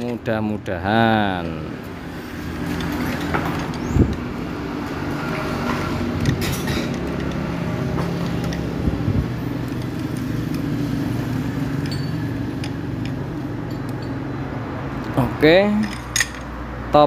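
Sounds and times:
low engine hum: 1.6 - 15.1
light metal clicks and knocks: 2.6 - 10.7, 11.7 - 14.2.

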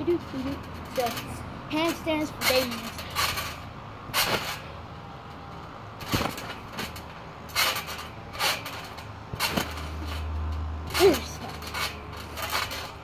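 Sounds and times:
feet thumping on trampoline mat: 2.7 - 4.6, 6.0 - 10.2.

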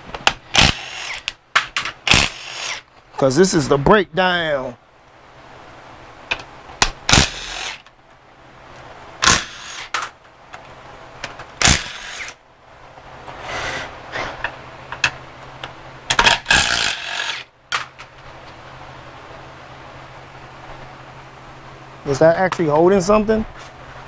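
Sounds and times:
impact driver bursts: 0.3 - 1.3, 2.0 - 2.8, 7.1 - 7.8, 9.2 - 10.0, 11.6 - 12.4, 16.2 - 17.5.

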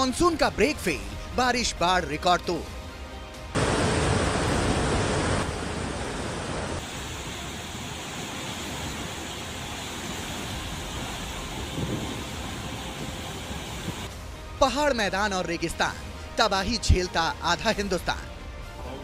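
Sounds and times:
floodwater rushing: 3.6 - 14.1.

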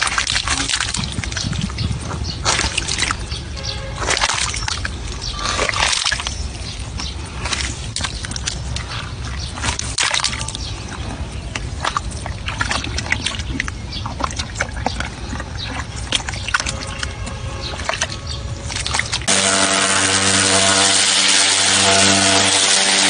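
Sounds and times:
wet mud squelching: 0.0 - 19.4
muddy water sloshing: 0.0 - 20.9.

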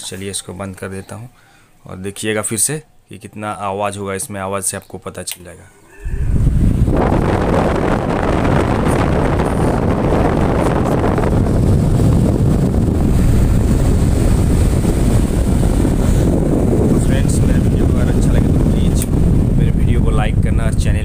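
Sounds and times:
wind buffeting microphone: 6.0 - 21.0
table fan running: 6.1 - 21.0.

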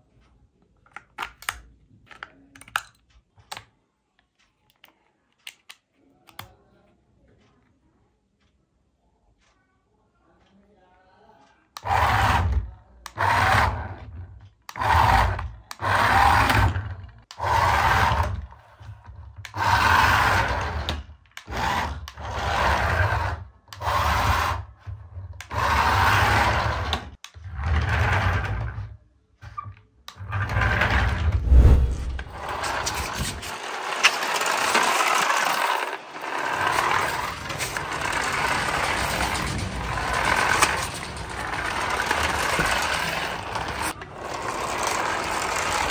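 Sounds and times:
toy car motor whirring: 11.8 - 28.9, 32.4 - 45.9.

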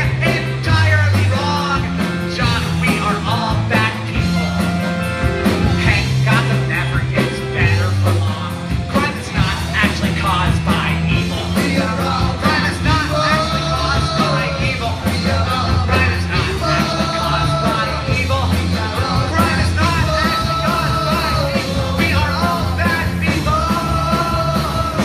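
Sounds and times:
live rock band playing: 0.0 - 25.0.

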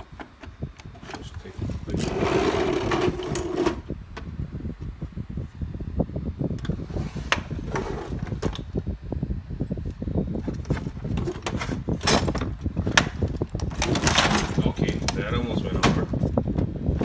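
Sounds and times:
metal tools clanking in drawer: 2.0 - 3.8, 11.6 - 12.4, 13.7 - 14.9
loose wrenches clanking: 13.6 - 15.0.

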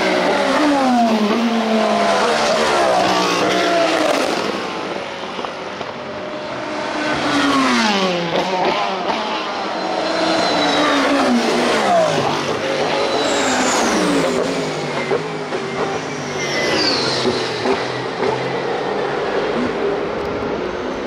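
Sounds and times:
race cars passing at speed: 0.0 - 21.0.

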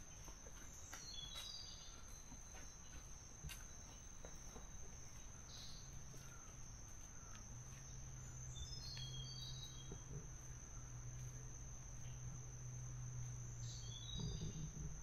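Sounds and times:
insects droning: 0.0 - 15.0
bird chirps: 0.1 - 3.1, 3.9 - 10.3, 13.6 - 15.0.

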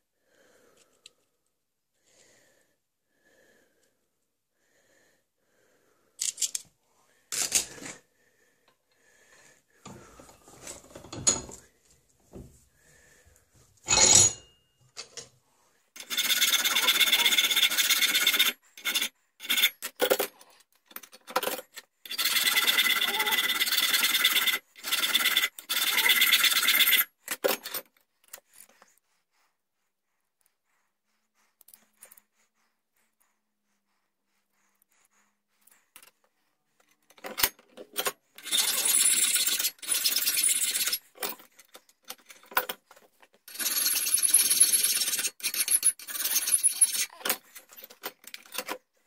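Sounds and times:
tools knocking and clattering: 10.8 - 11.6
file rasping on metal rod: 16.0 - 19.8.

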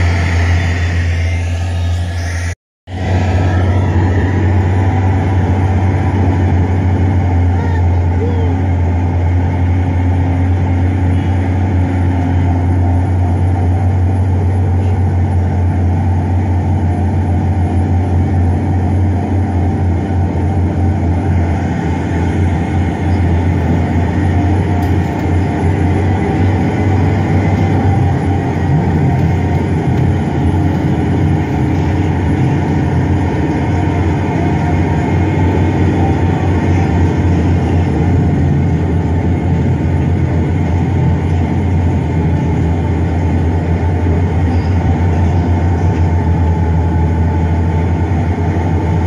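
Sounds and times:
heavy engine droning: 0.0 - 49.0.

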